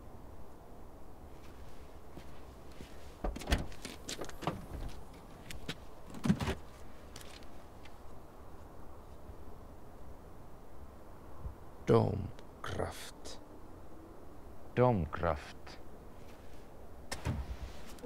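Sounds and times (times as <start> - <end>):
car boot latch clicks and clunks: 3.2 - 3.8, 17.1 - 17.6.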